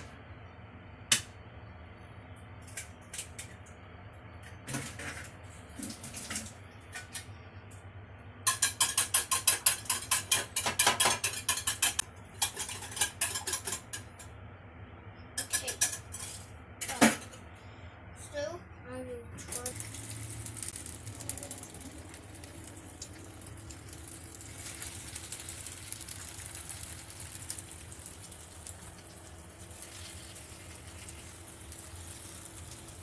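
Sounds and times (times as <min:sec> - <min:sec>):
whisk clinking against bowl: 0:08.5 - 0:14.1.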